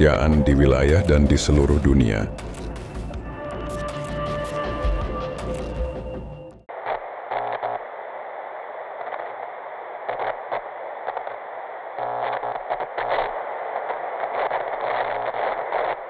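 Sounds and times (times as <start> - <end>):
glitchy crackles and buzzing: 0.0 - 16.0
tv static hiss: 6.7 - 16.0.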